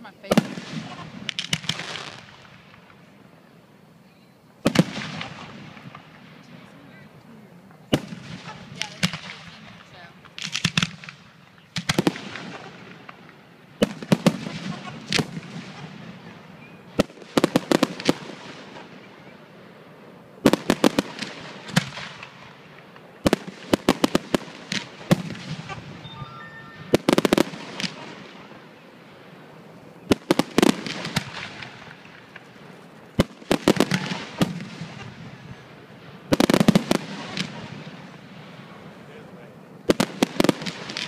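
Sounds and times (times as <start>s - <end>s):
fireworks bursting: 0.0s - 41.0s.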